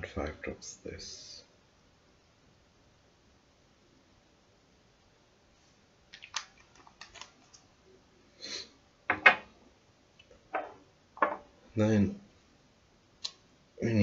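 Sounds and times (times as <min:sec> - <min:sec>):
small clicks and taps of bottles: 0:06.1 - 0:07.6.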